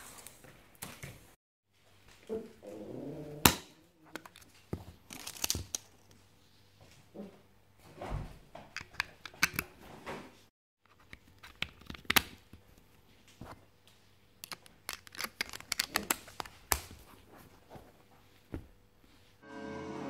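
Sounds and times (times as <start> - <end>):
batteries clicking into remote: 14.4 - 16.9.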